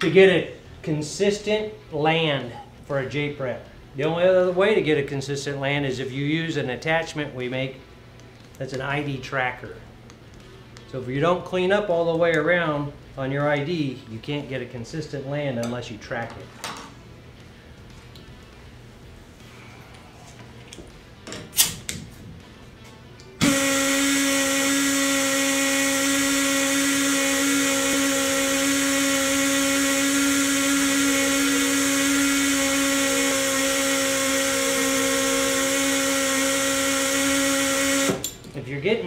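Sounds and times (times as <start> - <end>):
air motor whining: 23.4 - 38.3.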